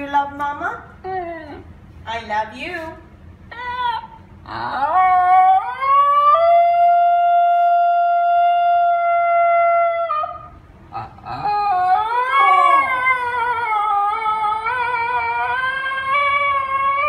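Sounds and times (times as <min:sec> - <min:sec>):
dog howling: 0:03.6 - 0:10.6, 0:11.2 - 0:17.0.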